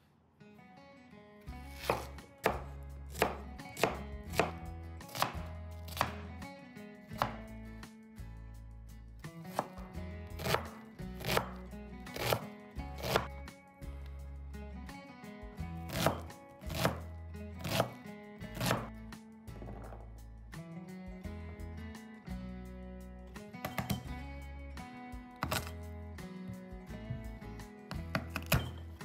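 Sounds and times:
knife chopping on wooden board: 0:01.8 - 0:06.3, 0:07.2 - 0:07.5, 0:09.5 - 0:11.6, 0:12.2 - 0:13.3, 0:15.9 - 0:17.0, 0:17.6 - 0:18.0, 0:18.6 - 0:18.9, 0:23.6 - 0:24.0, 0:25.4 - 0:25.8, 0:27.9 - 0:28.8.

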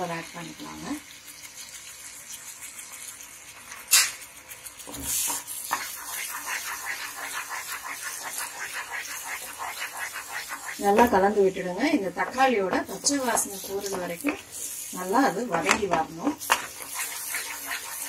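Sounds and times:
spatula scraping paste in pan: 0:03.7 - 0:18.0.

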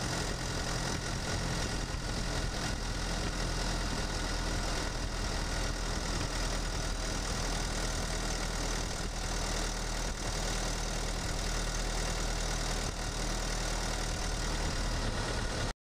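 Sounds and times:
diesel engine running: 0:00.0 - 0:15.7.

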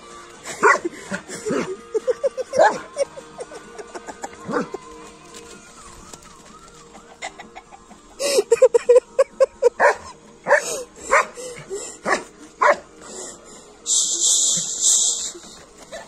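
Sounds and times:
dog barking: 0:00.6 - 0:00.9, 0:09.8 - 0:11.4, 0:12.0 - 0:12.9
rooster clucking and squawking: 0:05.8 - 0:12.4.

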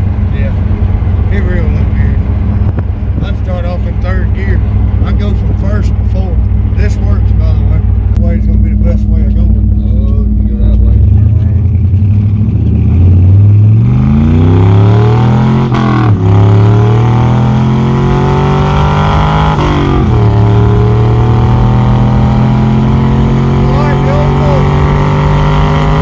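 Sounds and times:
car engine accelerating through gears: 0:03.9 - 0:26.0.

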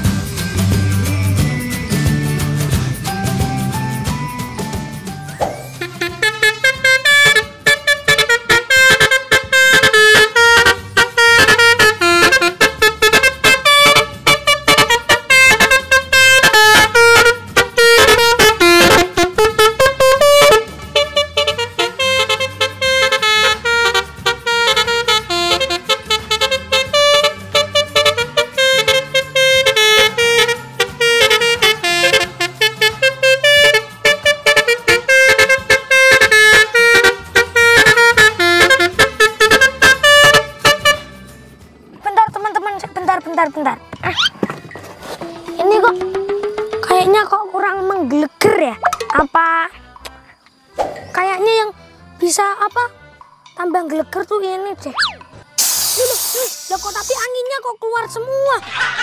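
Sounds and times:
musical air horn melody: 0:05.4 - 0:42.2, 0:55.6 - 0:57.2.

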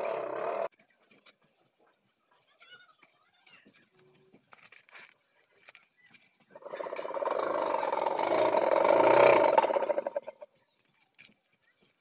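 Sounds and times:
hand-cranked blower whirring: 0:00.0 - 0:00.7, 0:06.6 - 0:10.4.

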